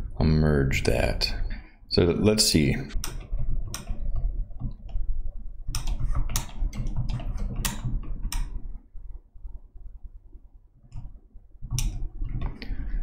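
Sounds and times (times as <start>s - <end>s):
computer keyboard typing: 2.9s - 8.7s, 10.9s - 12.6s.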